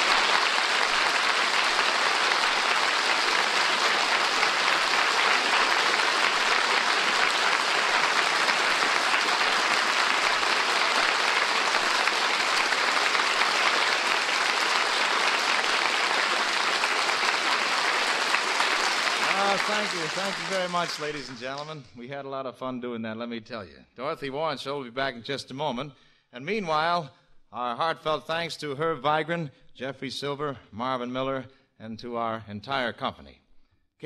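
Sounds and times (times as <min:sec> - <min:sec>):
studio audience applauding: 0:00.0 - 0:21.9.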